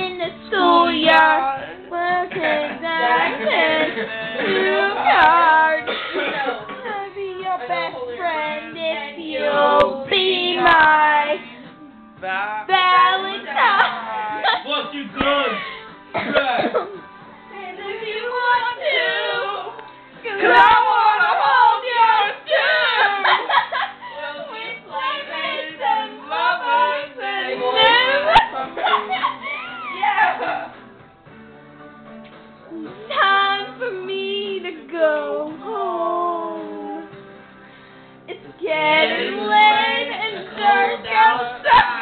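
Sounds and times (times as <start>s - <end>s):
person singing slow melody: 0.0s - 14.5s, 32.7s - 37.3s.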